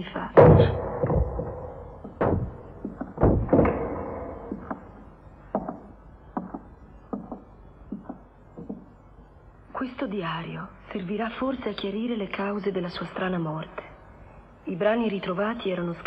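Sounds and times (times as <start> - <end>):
reverberant thuds and knocks: 0.0 - 9.0.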